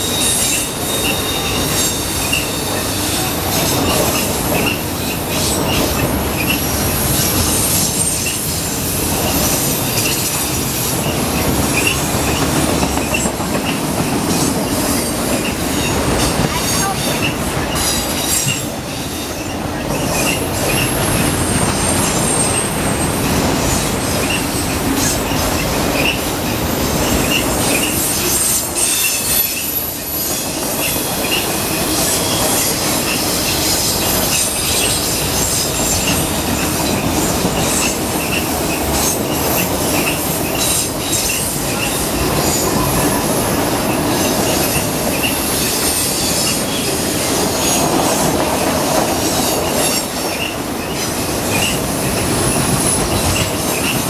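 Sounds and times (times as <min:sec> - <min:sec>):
high wheel squeals: 0:00.0 - 0:54.0
steel wheels rolling on rail: 0:00.0 - 0:54.0.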